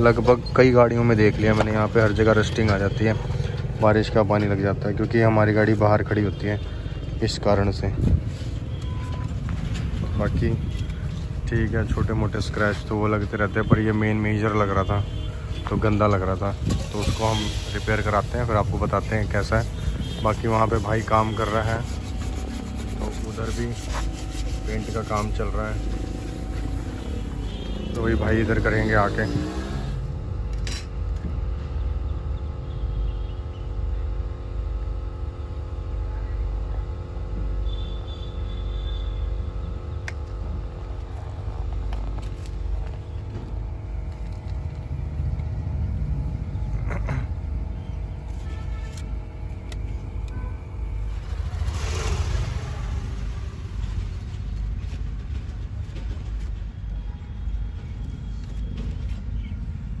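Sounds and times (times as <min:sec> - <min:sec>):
steady low rumble: 0:00.0 - 0:29.4, 0:39.4 - 1:00.0
motor humming: 0:15.1 - 0:30.2
spreader scraping filler: 0:16.6 - 0:30.0.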